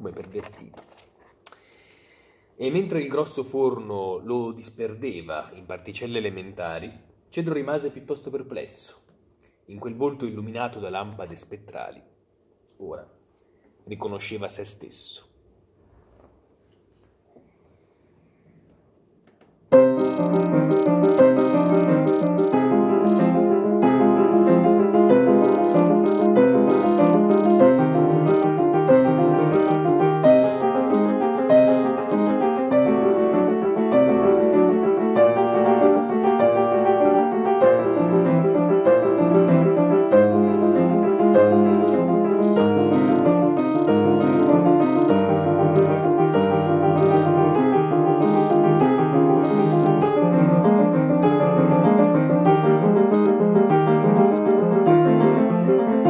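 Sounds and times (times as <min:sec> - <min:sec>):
solo piano piece: 0:19.7 - 0:56.0.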